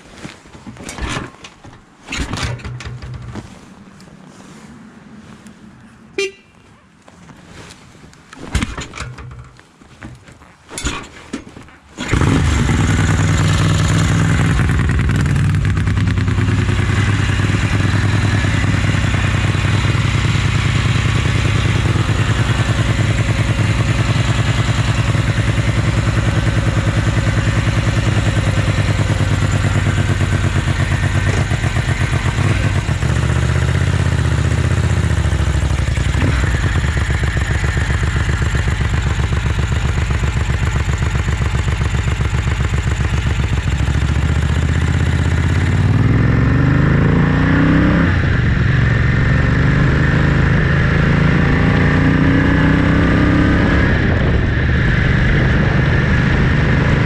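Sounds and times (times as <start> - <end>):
handling clicks and knocks: 0.0 - 4.1, 8.1 - 12.0
motorcycle engine idling: 12.1 - 45.8.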